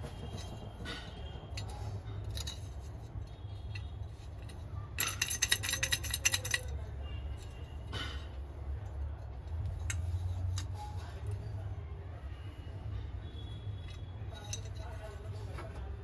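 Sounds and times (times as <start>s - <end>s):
metal objects clinking: 0.1s - 8.4s, 13.6s - 15.4s.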